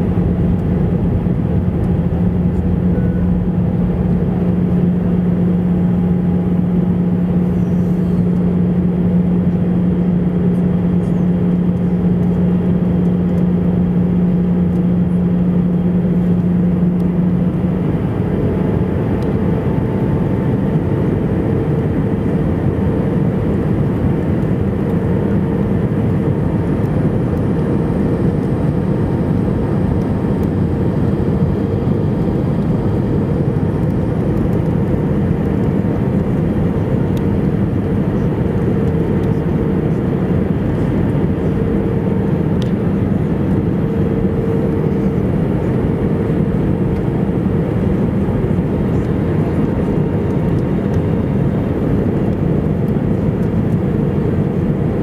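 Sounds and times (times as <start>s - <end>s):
airflow rush and engine drone: 0.0s - 55.0s
low hum: 0.0s - 55.0s
higher steady tone: 2.3s - 6.6s.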